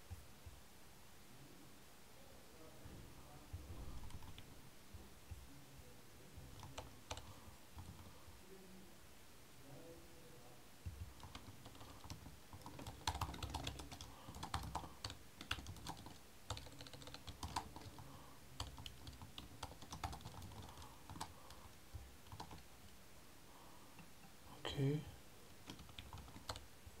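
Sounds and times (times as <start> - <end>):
typing on computer keyboard: 4.0 - 4.4, 6.5 - 8.1, 10.9 - 18.0, 18.6 - 21.6, 22.2 - 22.7, 25.6 - 26.6.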